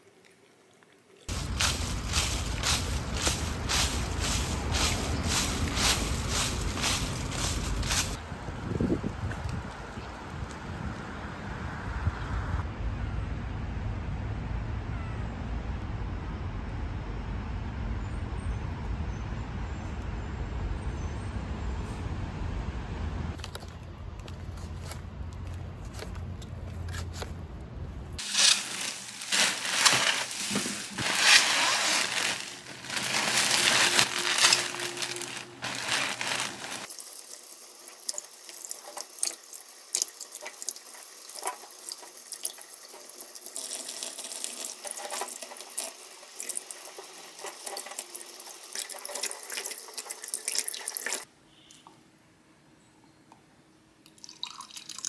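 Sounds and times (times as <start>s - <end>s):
outdoor traffic rumble: 1.3s - 36.9s
water dripping: 36.9s - 52.0s.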